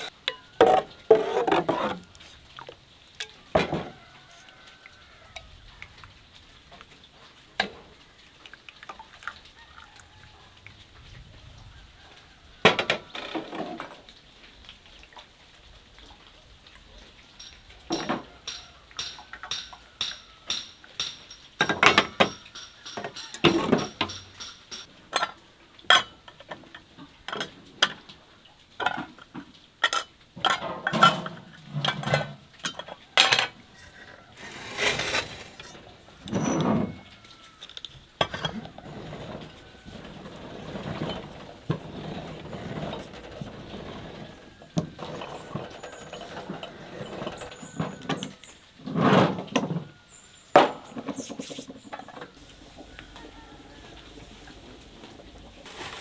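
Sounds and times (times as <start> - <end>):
ladle scraping metal pot: 0.0 - 2.3, 29.9 - 37.0
glass jars and lids clinking: 17.4 - 26.2, 29.8 - 37.0, 38.2 - 39.5, 40.2 - 48.5.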